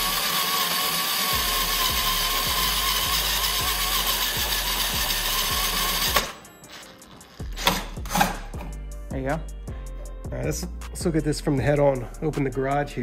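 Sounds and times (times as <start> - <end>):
cordless drill motor whining: 0.0 - 6.4.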